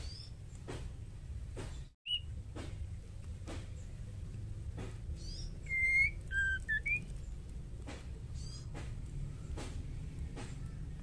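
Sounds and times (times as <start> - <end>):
bird whistling: 2.0 - 2.4, 5.2 - 7.2.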